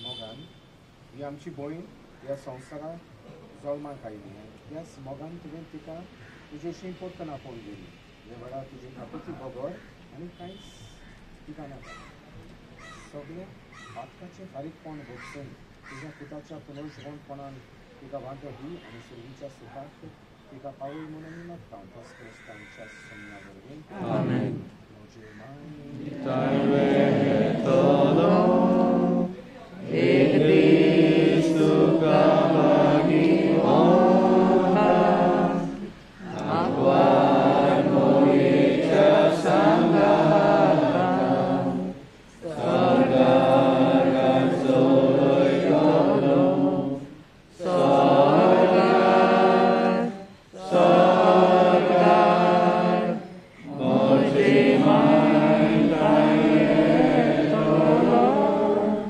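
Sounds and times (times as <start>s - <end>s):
crowd singing a prayer: 23.8s - 24.9s, 25.8s - 59.0s.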